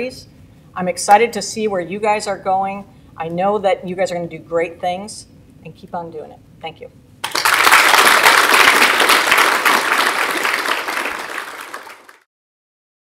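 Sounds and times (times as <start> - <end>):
audience applauding: 7.2 - 12.3.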